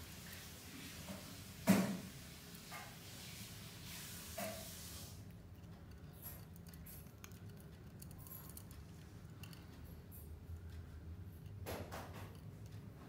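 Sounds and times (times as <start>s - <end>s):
soft hiss: 0.0s - 5.6s
birds pecking at strings: 5.3s - 13.0s.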